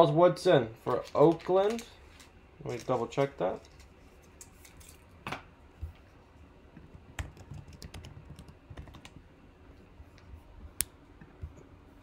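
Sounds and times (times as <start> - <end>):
typing on keyboard: 6.9 - 9.2.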